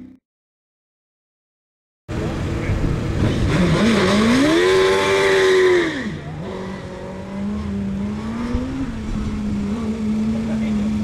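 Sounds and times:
racing car engine revving: 2.1 - 11.0.

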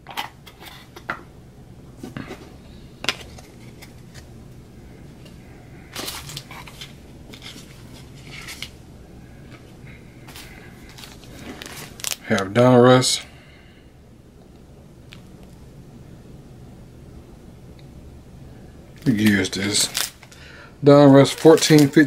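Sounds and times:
cards rustling: 2.1 - 4.3, 5.2 - 8.8, 9.5 - 12.5, 19.0 - 22.0.

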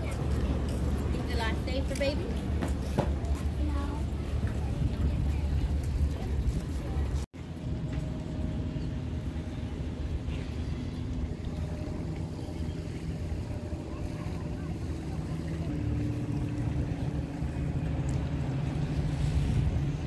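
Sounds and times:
boat engine humming: 0.0 - 20.0
wind on microphone: 0.0 - 20.0.

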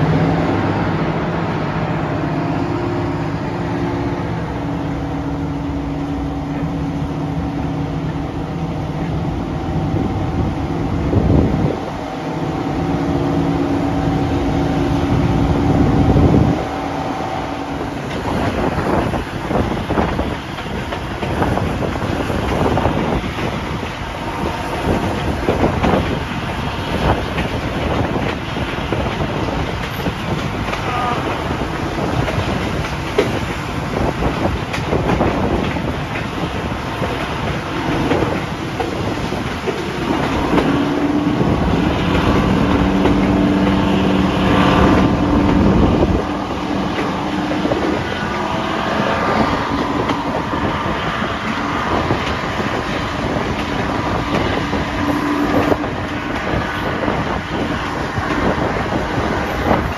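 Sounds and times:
diesel locomotive engines working: 0.0 - 59.9
train wheels clicking over rail joints: 17.6 - 59.9.

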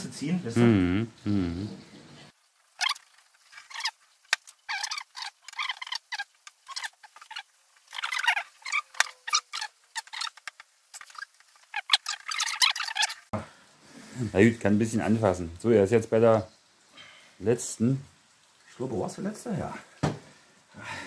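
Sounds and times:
glue squelching: 2.8 - 13.2.

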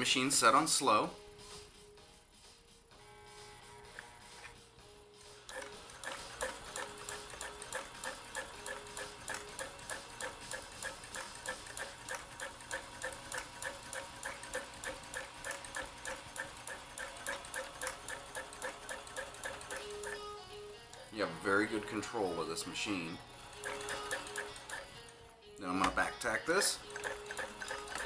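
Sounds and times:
sewing machine stitching: 5.4 - 20.2, 23.4 - 24.9, 26.9 - 28.0.

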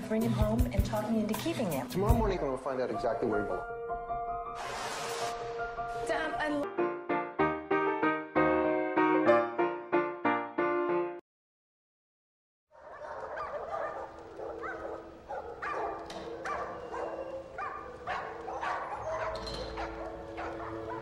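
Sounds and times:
dogs barking and yipping: 12.8 - 21.0.

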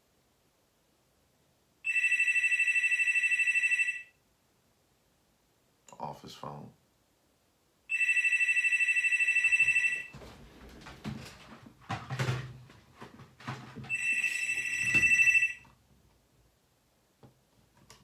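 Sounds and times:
office phone ringing: 1.9 - 4.2, 7.9 - 10.2, 13.8 - 15.7.

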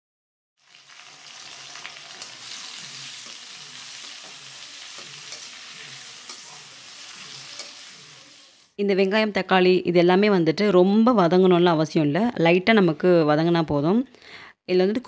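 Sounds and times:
vegetables sizzling in oil: 0.6 - 8.8.

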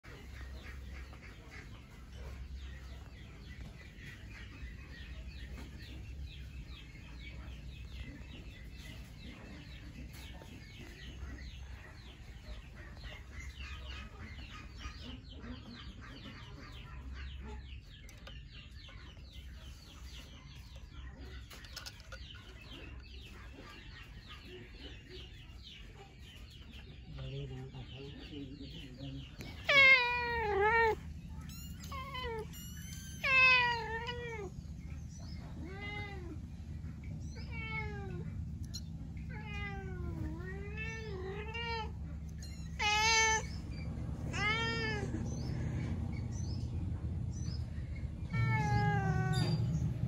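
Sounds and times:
chicks cheeping: 0.0 - 50.0
low rumble: 43.4 - 50.0.

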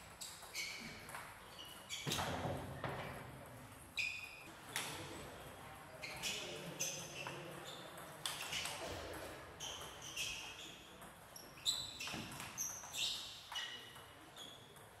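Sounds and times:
ping pong ball hitting bats: 0.0 - 3.9.

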